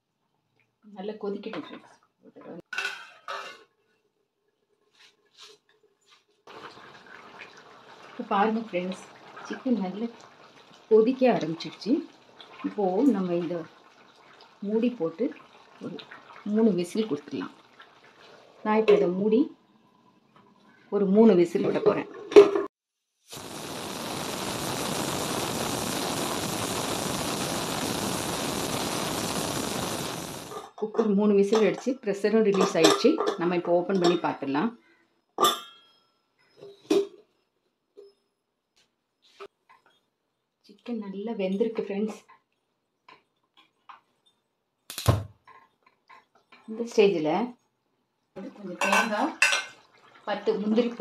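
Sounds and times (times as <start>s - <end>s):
gravy boiling with bubbling hiss: 3.8s - 21.6s, 23.2s - 30.8s, 45.8s - 51.0s
pressure cooker hissing steam: 23.3s - 30.6s.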